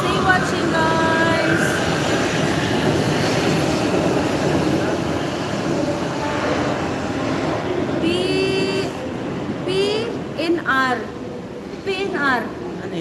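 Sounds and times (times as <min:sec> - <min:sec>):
metro train running: 0:00.0 - 0:13.0.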